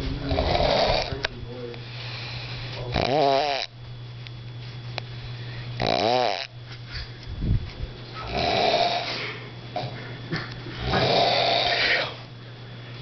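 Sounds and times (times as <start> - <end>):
man snoring: 0.2 - 1.2, 1.9 - 3.7, 5.8 - 6.5, 8.2 - 10.0, 10.8 - 12.3.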